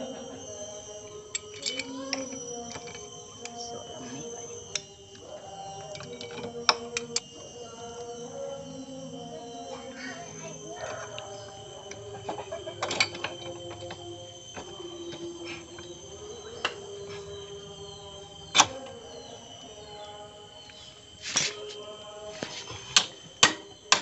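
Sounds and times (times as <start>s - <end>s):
faint background hum: 0.0s - 24.0s
metal wrench clinking on metal: 1.3s - 3.6s.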